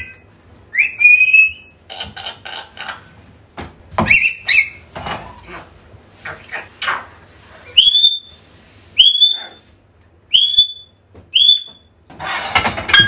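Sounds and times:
parrot whistling: 0.0s - 1.8s, 4.0s - 4.8s, 7.6s - 8.4s, 9.0s - 9.6s, 10.3s - 11.9s.

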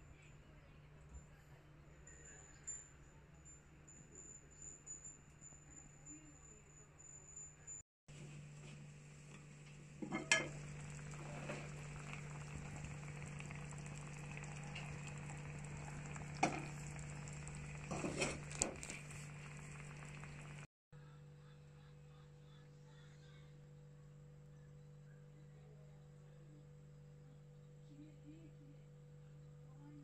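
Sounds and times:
hot pot bubbling: 8.9s - 20.7s
low hum: 9.0s - 20.7s
clinks against ceramic pot: 10.0s - 10.9s.

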